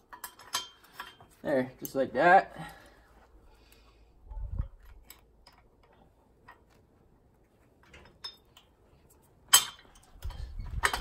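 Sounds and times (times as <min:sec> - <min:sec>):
metal pins clicking and clinking: 0:00.0 - 0:02.0, 0:07.8 - 0:08.8, 0:09.4 - 0:11.0.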